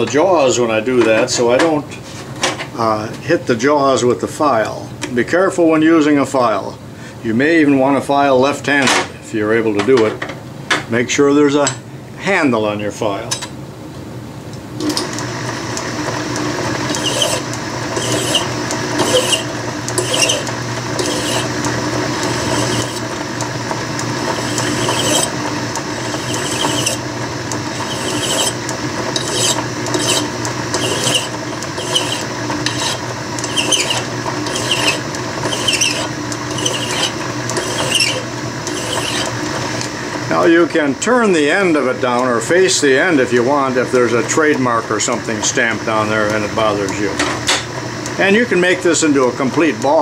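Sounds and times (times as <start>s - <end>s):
lathe running hum: 14.8s - 50.0s
file scraping spinning metal: 16.2s - 39.8s.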